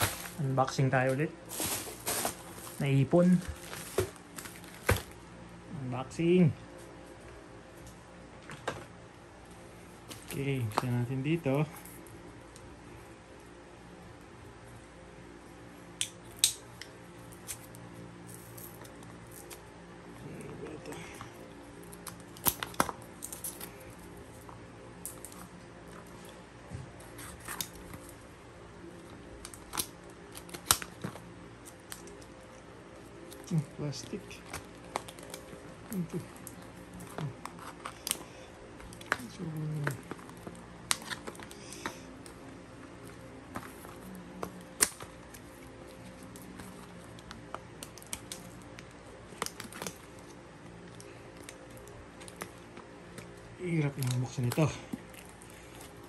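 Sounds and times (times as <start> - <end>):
scissors snipping packaging: 21.8 - 23.8, 29.4 - 32.3, 33.2 - 42.3, 43.5 - 56.0.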